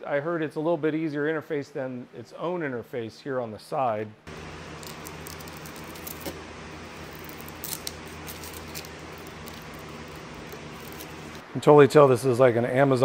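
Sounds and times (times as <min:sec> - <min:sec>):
steady low hum: 0:04.2 - 0:13.0.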